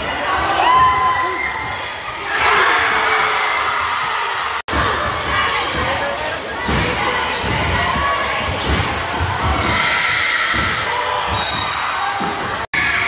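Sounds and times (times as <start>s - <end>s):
crowd voices: 0.0s - 13.0s
referee whistle blast: 11.3s - 11.9s.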